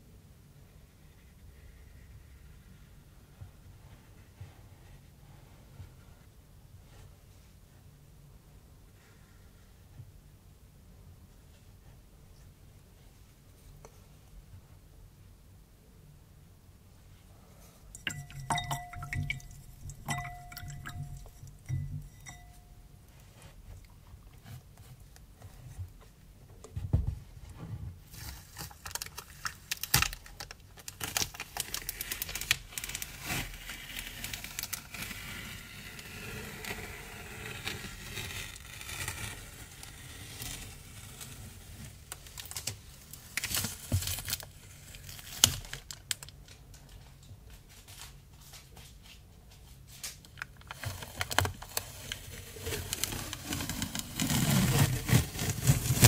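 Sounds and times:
scratchy rustling and clicking: 0:50.0 - 0:56.0.

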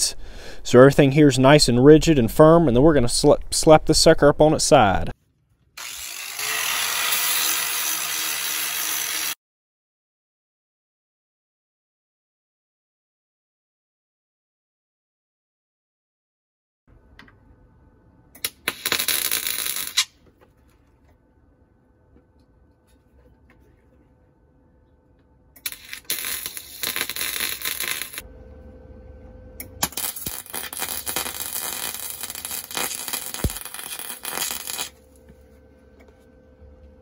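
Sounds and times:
arc welder crackling and sizzling: 0:05.8 - 0:09.4, 0:18.4 - 0:20.4, 0:25.6 - 0:28.3, 0:29.6 - 0:35.6
faint steady hum: 0:16.9 - 0:37.0.

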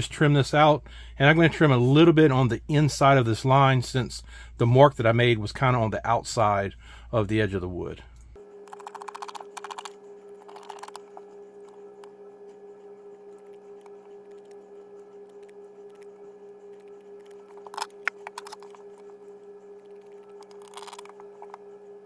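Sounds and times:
low hum: 0:07.7 - 0:22.0.

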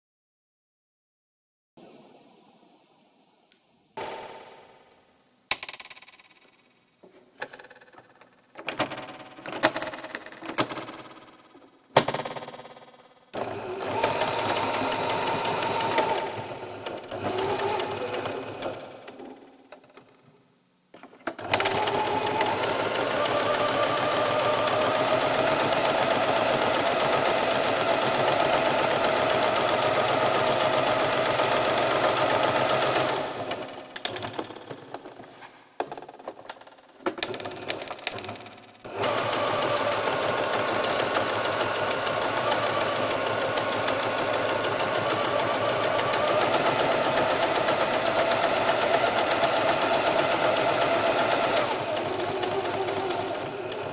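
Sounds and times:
small machine clattering: 0:07.4 - 0:11.4.

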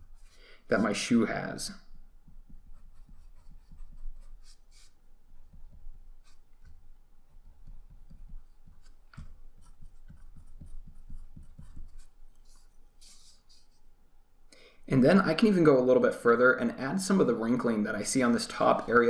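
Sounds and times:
pencil scratching on paper: 0:02.2 - 0:13.8.

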